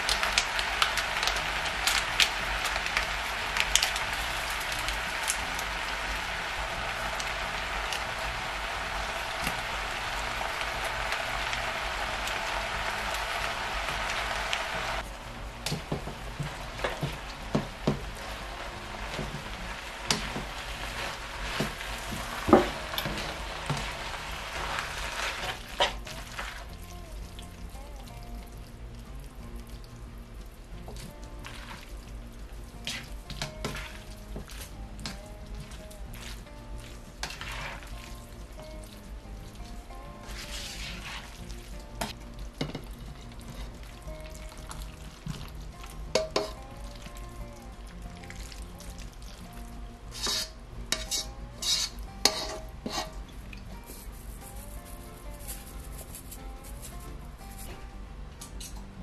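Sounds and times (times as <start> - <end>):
food sizzling in a wok: 0.0 - 57.8
spatula scraping a pan: 15.7 - 26.8, 32.8 - 38.4, 40.1 - 44.0, 46.1 - 46.6, 50.0 - 56.9.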